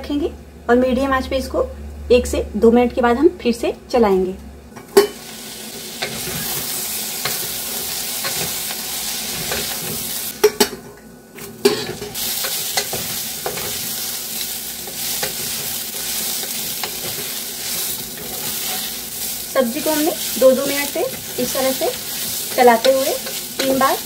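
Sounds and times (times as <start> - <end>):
food sizzling in hot oil: 5.0 - 10.6, 11.4 - 24.0.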